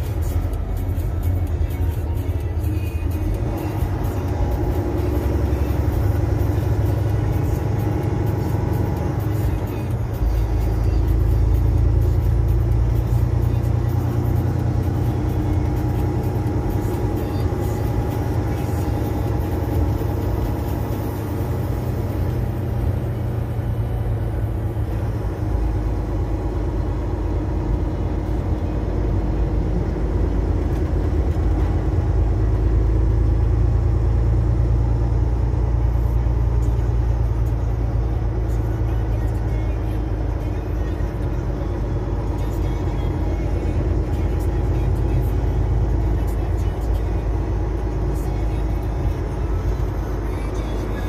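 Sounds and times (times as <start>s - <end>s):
vehicle engine and tyres rumbling: 0.0s - 51.0s.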